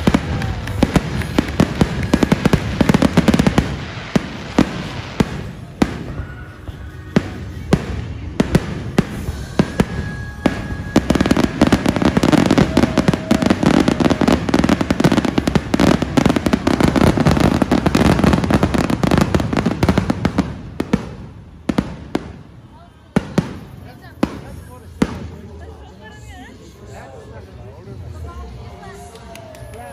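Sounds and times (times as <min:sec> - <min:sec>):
fireworks bangs and crackles: 0:00.0 - 0:26.2.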